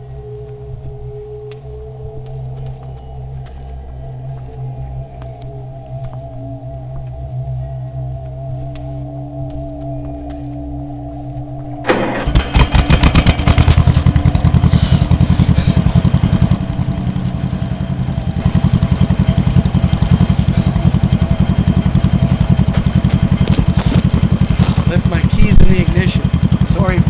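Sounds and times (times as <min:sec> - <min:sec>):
tractor engine chugging: 0:11.7 - 0:27.0.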